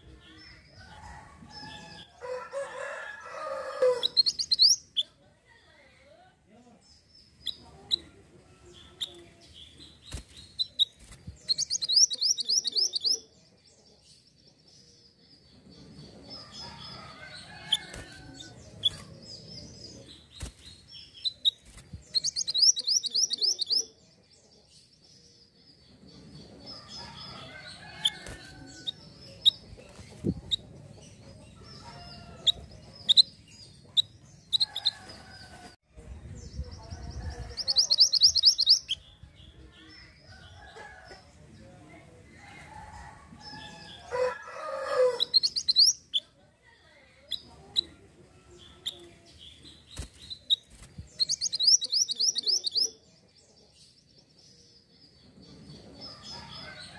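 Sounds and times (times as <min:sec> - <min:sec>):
bird chirping: 0:03.8 - 0:05.2, 0:06.8 - 0:35.6, 0:36.5 - 0:40.6, 0:45.0 - 0:46.3, 0:48.6 - 0:56.9.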